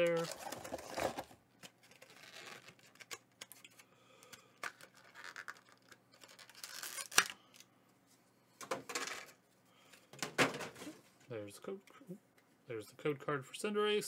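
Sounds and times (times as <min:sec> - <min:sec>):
hands handling plastic packaging: 0:00.0 - 0:07.7.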